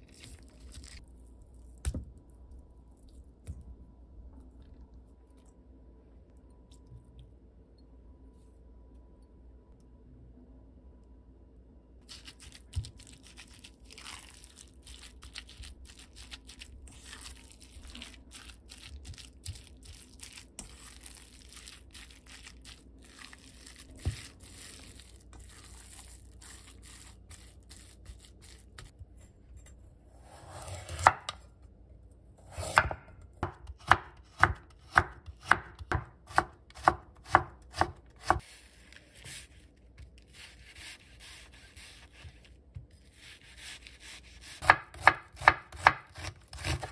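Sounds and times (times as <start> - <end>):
knife chopping on wooden board: 32.5 - 38.4, 44.0 - 46.9.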